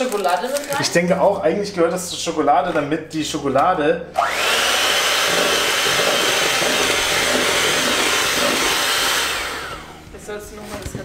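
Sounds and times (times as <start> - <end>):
electric hand mixer whipping cream: 4.2 - 10.1.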